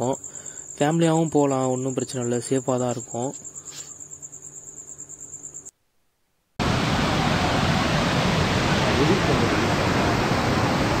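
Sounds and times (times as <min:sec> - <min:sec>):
waterfall rushing: 0:06.6 - 0:11.0.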